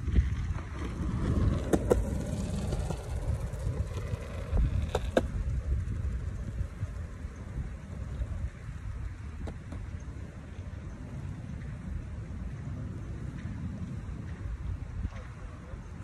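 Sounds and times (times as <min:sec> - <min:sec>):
skateboard wheels rolling on concrete: 0:00.0 - 0:16.0
wind rumble on microphone: 0:00.0 - 0:16.0
skateboard wheels clacking over seams: 0:00.2 - 0:07.1.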